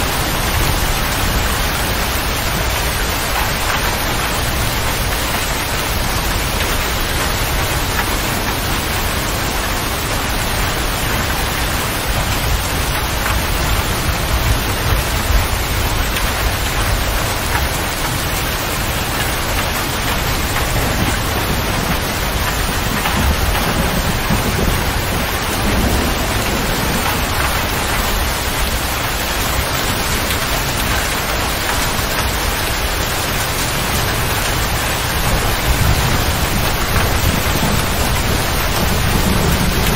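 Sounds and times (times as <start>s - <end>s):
heavy rain on cab roof: 0.0s - 39.9s.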